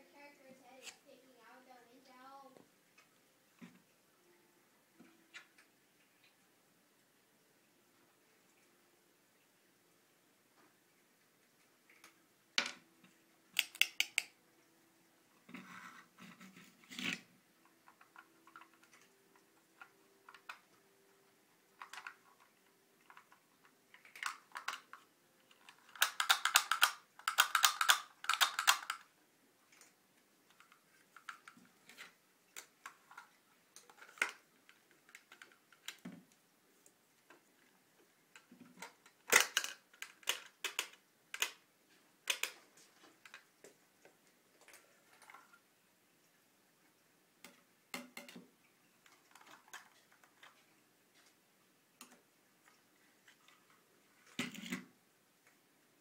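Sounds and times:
plastic pieces clicking on wooden table: 13.6 - 14.3, 23.1 - 25.0, 25.6 - 29.1, 38.4 - 41.6, 42.2 - 42.6.

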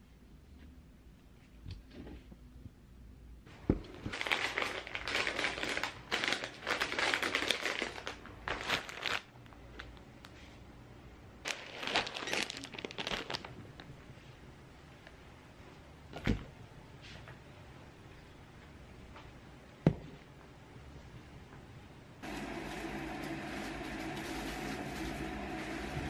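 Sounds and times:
plastic packaging crinkling: 3.9 - 10.0, 11.5 - 13.9.

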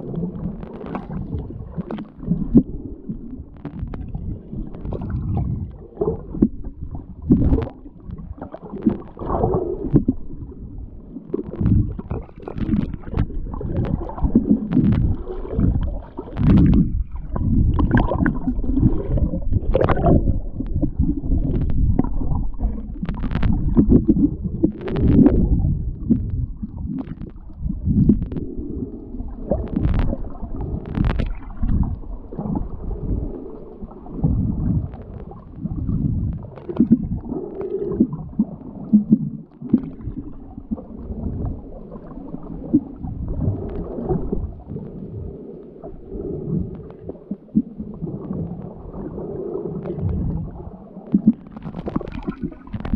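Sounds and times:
low rumbling: 0.0 - 37.3
underwater water sloshing and gurgling: 0.0 - 52.9.

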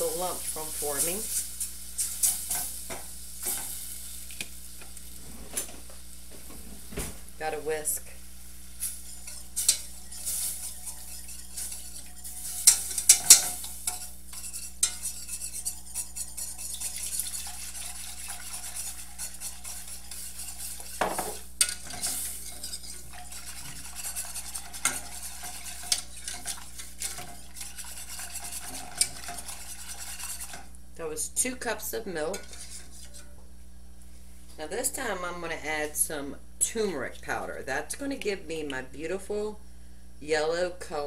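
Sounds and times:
light sizzle: 0.0 - 41.0
whisk clinking and scraping pan: 8.8 - 30.7, 32.2 - 33.4.

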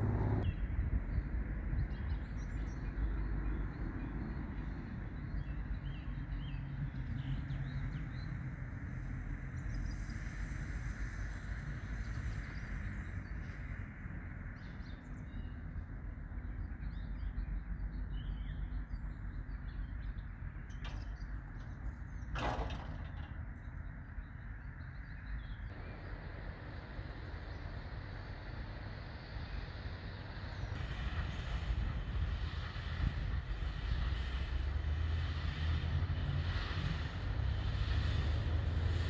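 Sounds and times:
steady low rumble: 0.0 - 6.4, 11.8 - 39.0.

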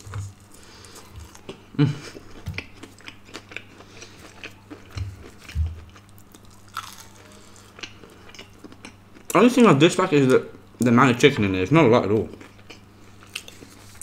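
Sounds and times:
chewing fried chicken: 0.0 - 9.5, 12.3 - 14.0
crisp crunches: 6.3 - 7.7.

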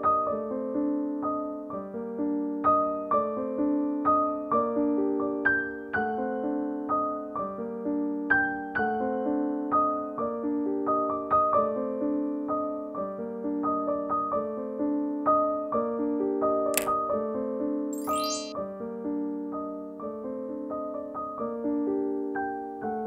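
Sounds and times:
soft keyboard music: 18.0 - 18.6.

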